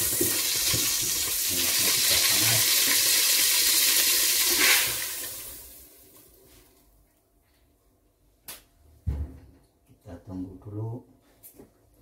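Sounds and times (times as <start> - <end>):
hot oil sizzling in a pot: 0.0 - 6.2.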